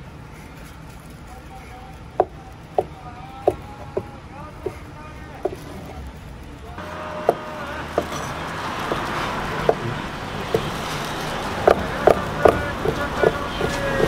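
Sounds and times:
street traffic: 0.0 - 14.0
knife chopping on wooden board: 7.2 - 9.9, 10.5 - 10.8, 11.6 - 14.0.

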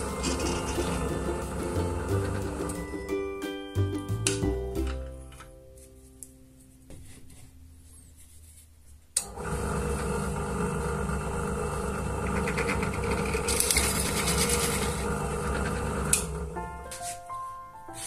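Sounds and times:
drill press motor hum: 9.2 - 16.5
drill bit scraping plastic: 12.1 - 16.0.

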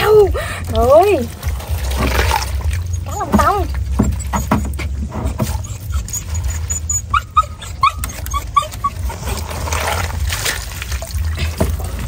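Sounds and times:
low steady rumble: 0.0 - 12.0
dog whimpering and yipping: 2.6 - 9.6.

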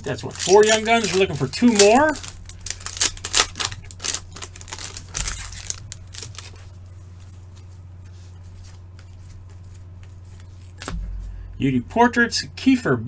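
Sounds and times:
foil pack crinkling and tearing: 0.0 - 7.4
steady low hum: 0.0 - 13.0.

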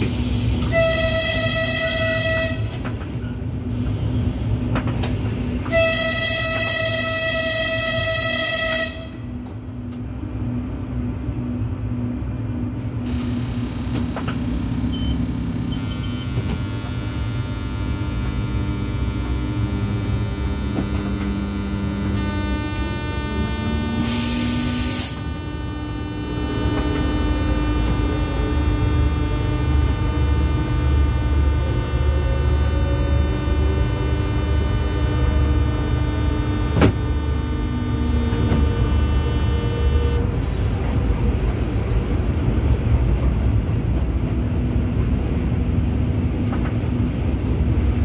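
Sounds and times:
train rumble: 0.0 - 48.0
train horn: 0.6 - 3.0, 5.6 - 9.5, 15.7 - 40.6
high whine with overtones: 9.6 - 40.4
wavering motor hum: 10.4 - 40.4.

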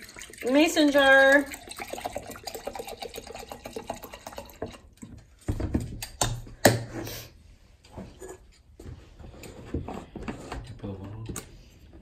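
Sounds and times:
liquid pouring into glass jar: 0.0 - 5.4.

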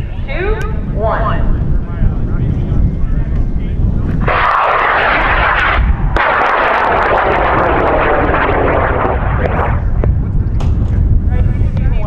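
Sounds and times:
wind rumbling on microphone: 0.0 - 12.0
rocket motor rushing roar: 4.1 - 10.0.

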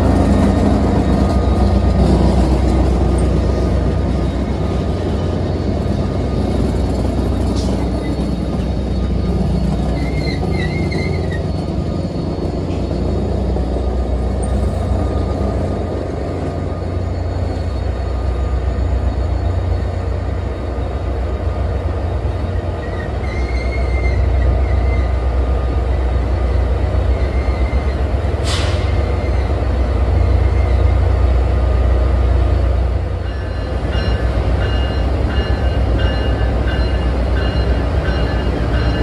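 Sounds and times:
sharp air hiss: 28.4 - 29.0.

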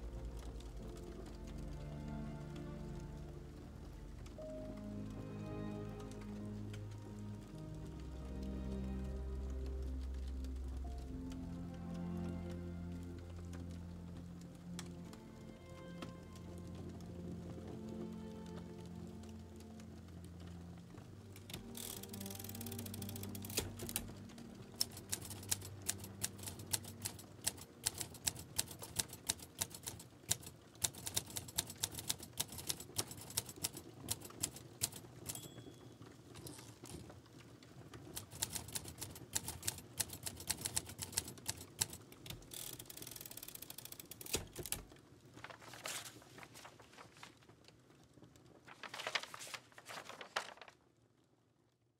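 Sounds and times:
keys typing clicks: 21.5 - 37.1, 38.1 - 44.9.

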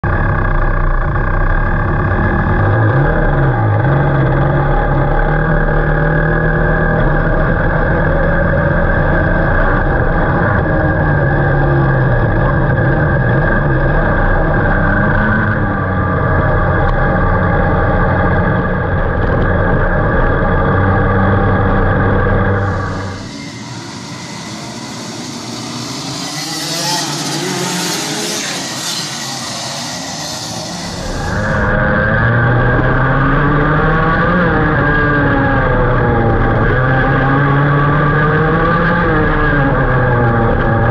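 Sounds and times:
kart engine running: 0.0 - 40.9.

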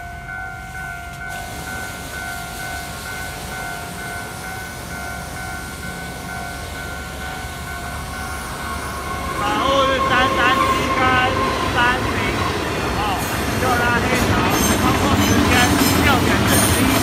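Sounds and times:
level crossing warning bell: 0.0 - 17.0.

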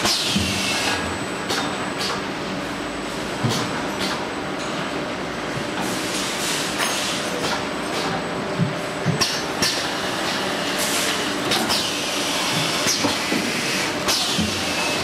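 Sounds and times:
shrink-wrapping machine running: 9.3 - 15.0.

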